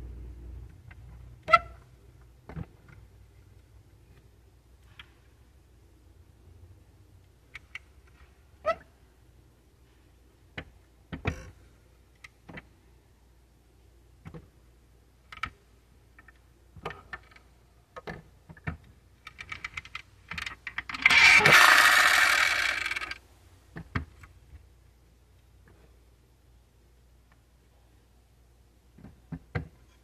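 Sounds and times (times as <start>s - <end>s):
toy car parts clicking: 19.2s - 23.2s
toy car noisy burst: 20.9s - 23.2s.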